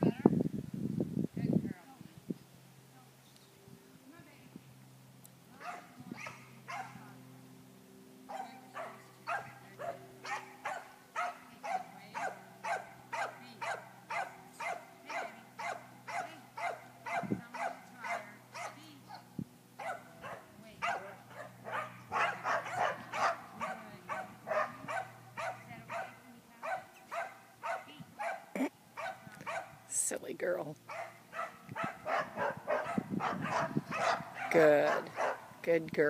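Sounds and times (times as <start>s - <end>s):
dog barking: 5.6s - 7.0s, 8.3s - 19.2s, 19.8s - 29.8s, 30.9s - 35.5s.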